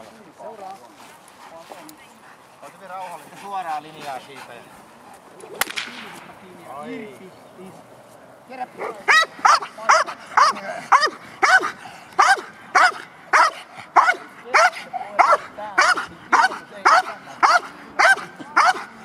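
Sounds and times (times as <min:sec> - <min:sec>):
dog barking: 0:08.8 - 0:18.9.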